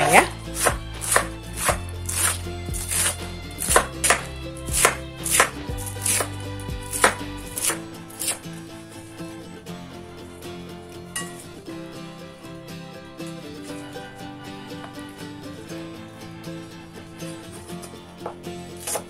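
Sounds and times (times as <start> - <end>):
knife chopping on wooden board: 0.2 - 8.4.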